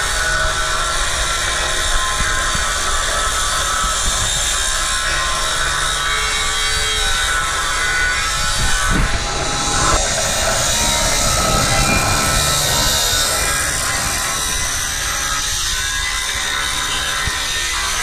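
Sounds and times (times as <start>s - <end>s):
angle grinder cutting steel: 7.3s - 17.0s.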